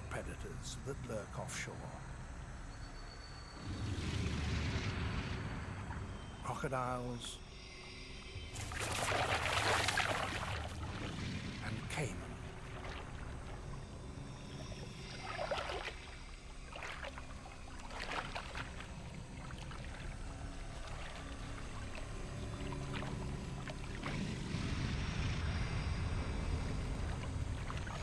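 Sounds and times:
water noise: 3.6 - 28.0
sharp water splashes: 8.6 - 13.7, 15.0 - 20.1
low steady rumble: 15.9 - 28.0.

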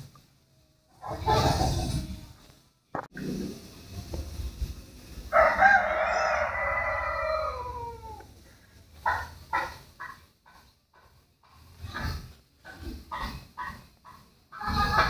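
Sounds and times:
rooster crowing: 5.3 - 8.3.

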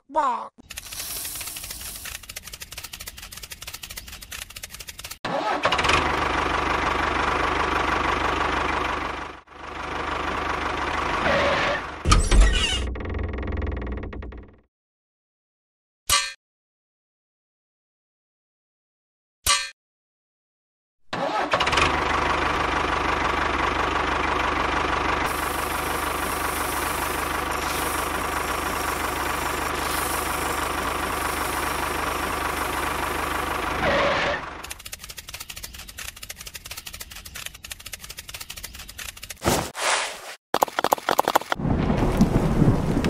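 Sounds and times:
tractor engine running: 0.6 - 12.1, 12.9 - 14.6, 21.2 - 39.6, 40.6 - 43.0.

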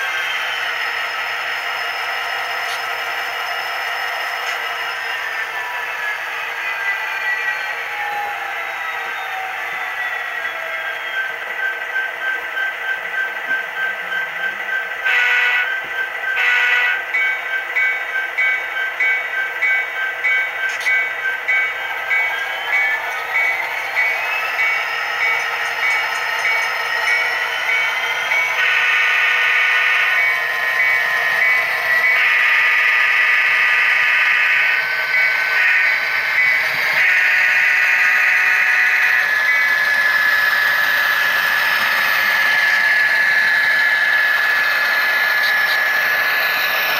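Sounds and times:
locomotive bell ringing: 10.8 - 46.9
locomotive horn blasts: 15.0 - 15.8, 16.4 - 17.1, 28.6 - 30.2, 32.1 - 34.8, 35.6 - 36.0, 36.9 - 39.3.

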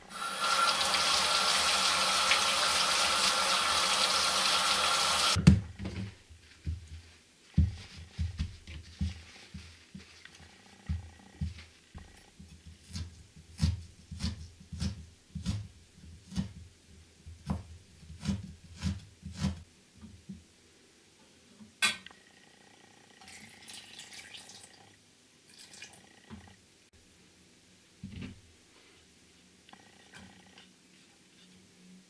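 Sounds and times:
water pouring into pan: 23.3 - 24.7.

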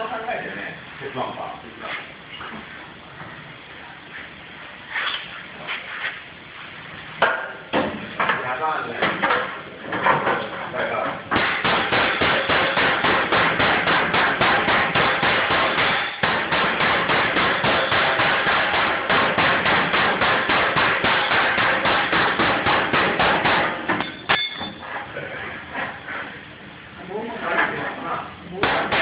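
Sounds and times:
hammer striking steel: 11.4 - 24.8.

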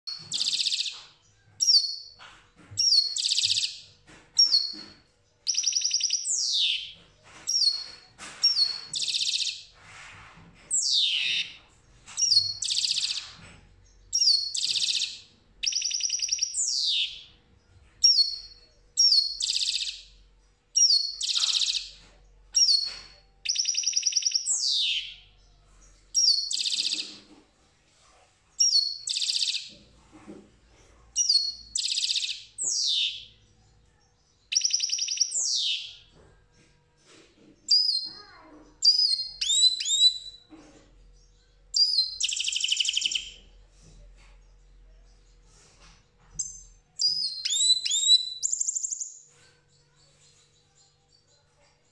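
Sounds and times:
goldfinch singing: 5.5 - 9.6, 10.7 - 11.6, 12.2 - 13.3, 14.2 - 17.3, 20.8 - 21.9, 26.2 - 27.2, 28.6 - 29.8, 31.2 - 33.3.

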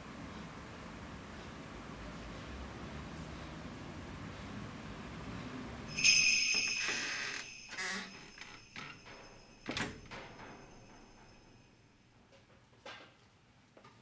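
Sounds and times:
bright metallic chimes ringing: 5.9 - 11.8
soft clicks and tinkles: 5.9 - 12.5.

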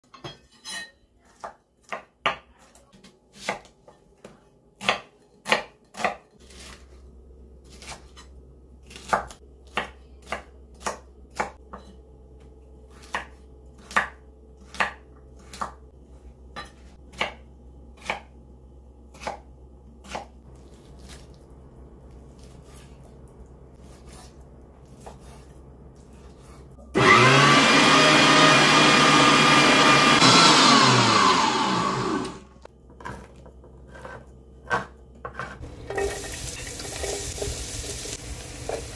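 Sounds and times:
knife chopping on wooden board: 4.8 - 6.8, 23.8 - 25.5
electric meat grinder running: 27.0 - 32.6.

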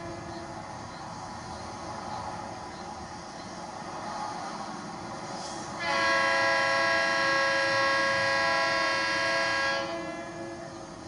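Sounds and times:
train rumble: 0.0 - 11.0
locomotive air horn blast: 5.7 - 10.7.

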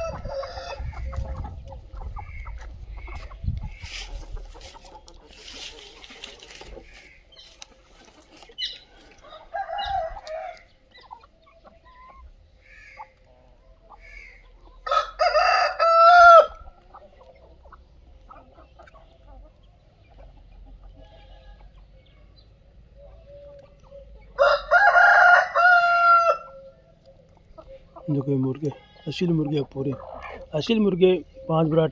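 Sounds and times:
rooster crowing: 0.0 - 0.9, 9.2 - 10.7, 14.8 - 16.6, 24.4 - 26.8
chicken clucking: 0.0 - 31.9.

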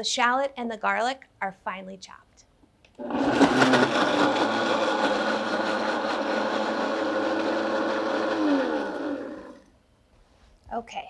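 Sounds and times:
blender running: 3.0 - 9.8.

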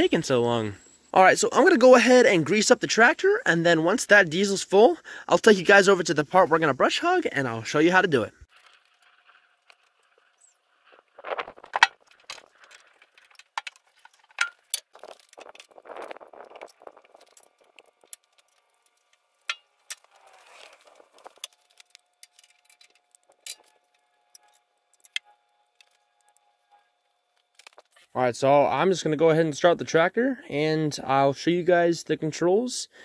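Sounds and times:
rustling: 8.3 - 28.2.

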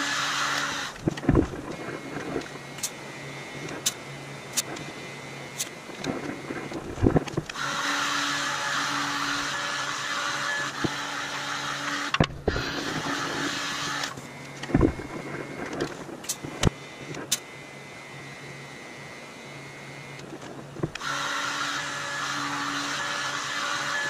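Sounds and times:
welding arc hiss: 0.0 - 7.0, 12.0 - 17.5
welder hum: 0.0 - 24.0.

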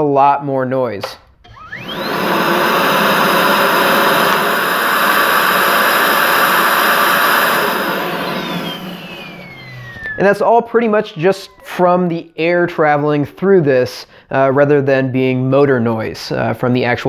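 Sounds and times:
vacuum motor whine: 1.4 - 10.4
vacuum suction rush: 1.5 - 10.4.

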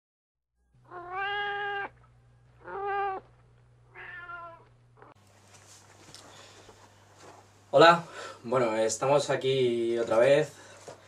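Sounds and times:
cat meowing: 0.8 - 2.0, 2.6 - 3.3, 3.9 - 5.1.

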